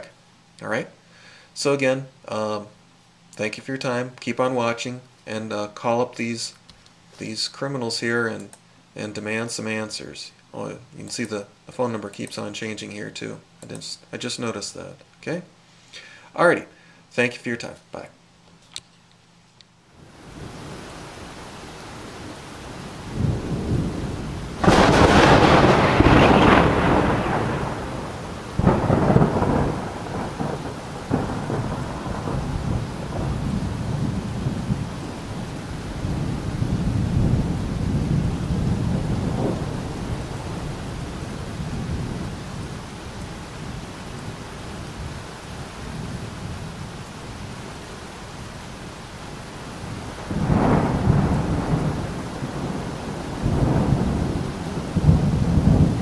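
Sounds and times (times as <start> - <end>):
rain hissing: 19.9 - 56.0
rolling thunder rumbles: 22.2 - 47.5, 49.6 - 56.0
loud thunderclap: 23.1 - 35.0, 36.0 - 42.4, 50.0 - 56.0.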